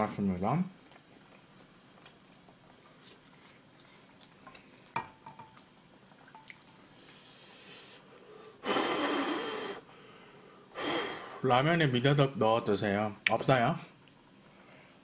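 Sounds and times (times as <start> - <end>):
soft breathy hiss: 6.3 - 12.6, 13.5 - 15.0.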